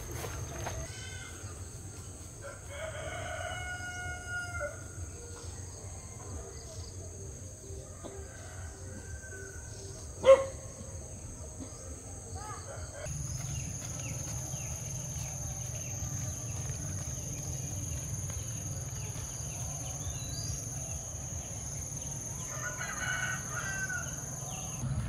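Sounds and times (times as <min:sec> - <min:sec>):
rooster crowing: 0:02.4 - 0:05.0, 0:21.7 - 0:24.8.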